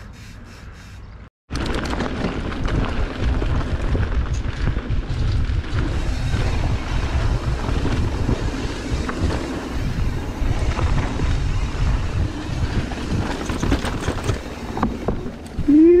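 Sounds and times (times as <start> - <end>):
bike rattles and knocks: 1.5 - 15.7
wind rushing over microphone: 1.5 - 16.0.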